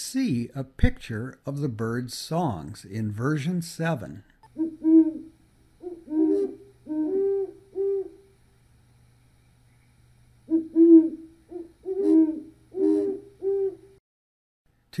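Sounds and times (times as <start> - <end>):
owls hooting: 4.6 - 8.3, 10.5 - 14.0.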